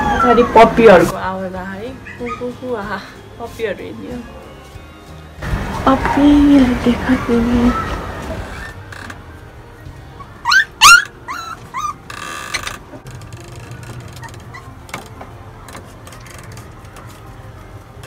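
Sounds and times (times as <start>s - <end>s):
puppies whimpering: 0.0s - 1.1s, 2.0s - 2.6s, 7.5s - 8.9s, 10.2s - 12.1s, 14.2s - 14.9s.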